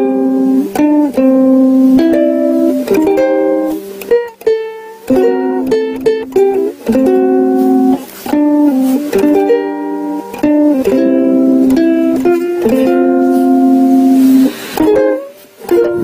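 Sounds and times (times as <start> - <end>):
ukulele melody: 0.0 - 16.0.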